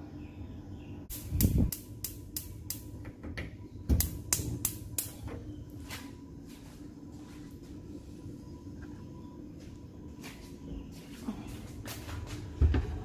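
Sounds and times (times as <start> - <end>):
gas burner igniter clicking: 1.1 - 3.1, 3.9 - 5.2.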